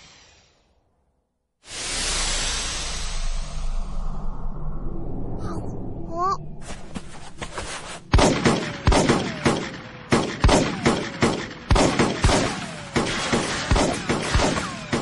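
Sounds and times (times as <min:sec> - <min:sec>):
falling bullet whine: 0:01.7 - 0:06.0
sharp gunshots: 0:08.1 - 0:15.0.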